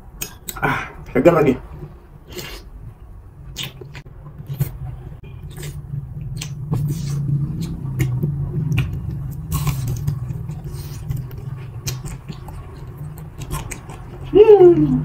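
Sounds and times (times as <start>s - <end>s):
steady low hum: 0.0s - 15.0s
wet mouth clicks and smacks: 3.6s - 4.8s, 5.5s - 14.2s
chewing fried snacks: 5.5s - 15.0s.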